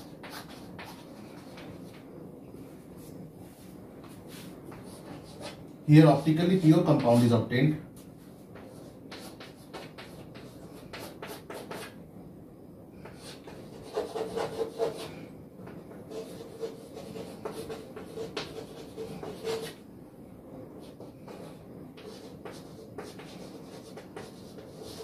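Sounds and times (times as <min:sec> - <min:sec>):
chalk scratching on chalkboard: 0:08.6 - 0:12.0, 0:13.0 - 0:15.2, 0:15.9 - 0:19.8, 0:20.8 - 0:25.0.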